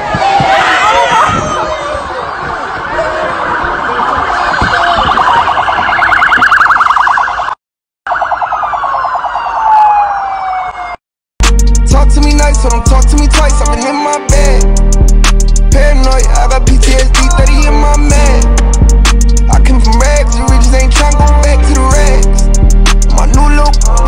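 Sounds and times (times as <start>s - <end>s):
police siren wailing: 0.8s - 11.0s
hip-hop music with heavy beat: 11.4s - 24.0s.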